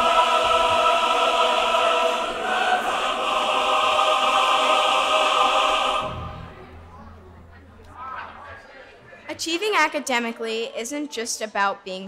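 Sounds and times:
choir-like aah chords: 0.0s - 7.0s.

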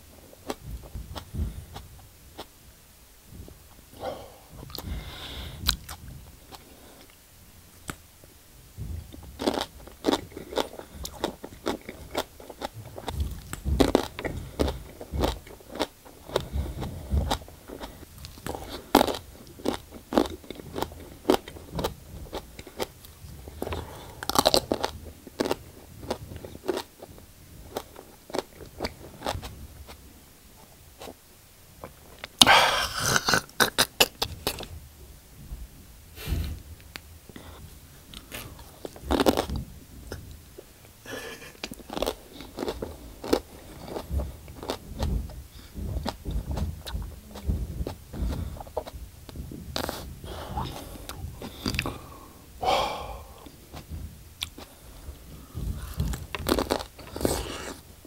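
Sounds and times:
chewing crunchy leaf: 9.1s - 30.0s, 38.1s - 39.6s, 41.2s - 49.0s, 55.4s - 57.9s.

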